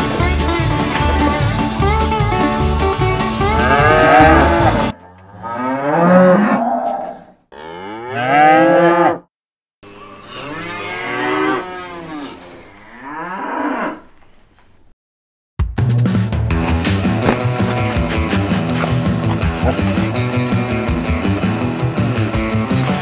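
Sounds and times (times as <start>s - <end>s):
background music: 0.0s - 5.0s, 15.8s - 23.0s
cows mooing: 3.4s - 9.2s, 9.9s - 14.1s, 17.2s - 20.4s.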